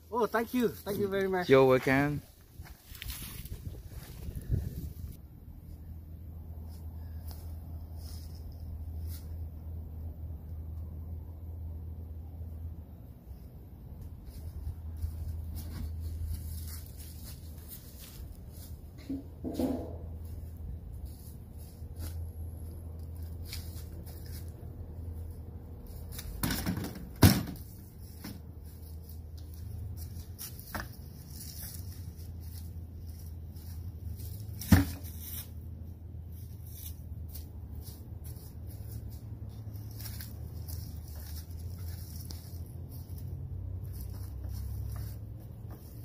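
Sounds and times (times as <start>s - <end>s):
steady low rumble: 2.2s - 19.4s.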